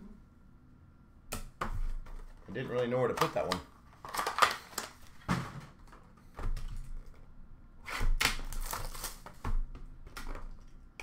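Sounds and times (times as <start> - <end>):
plastic wrap crinkling: 4.0 - 5.2.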